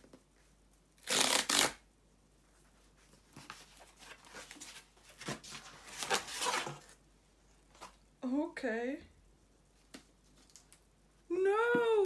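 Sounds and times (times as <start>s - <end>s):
cardboard ripping: 1.0s - 1.8s, 5.2s - 6.9s
cardboard and paper rustling: 2.8s - 7.0s.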